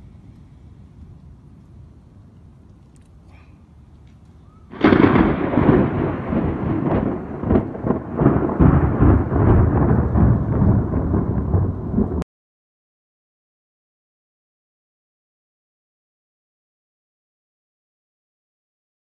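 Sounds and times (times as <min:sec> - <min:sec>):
thunder crack and rumble: 0:04.7 - 0:12.2.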